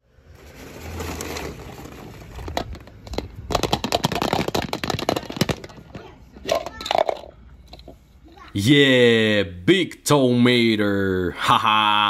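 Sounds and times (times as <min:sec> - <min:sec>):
plastic toys clattering: 0:00.3 - 0:08.0.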